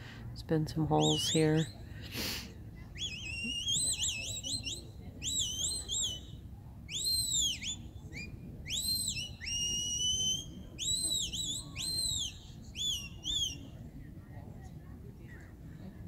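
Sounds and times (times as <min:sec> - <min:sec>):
shepherd's whistle commands: 0:03.0 - 0:06.3, 0:06.9 - 0:13.6.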